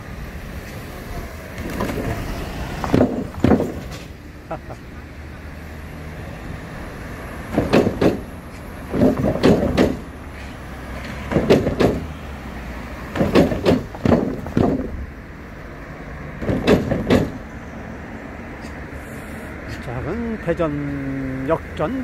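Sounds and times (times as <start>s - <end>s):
car wheels over wooden planks: 0.6s - 4.2s, 7.5s - 12.2s, 13.0s - 15.1s, 16.4s - 17.4s.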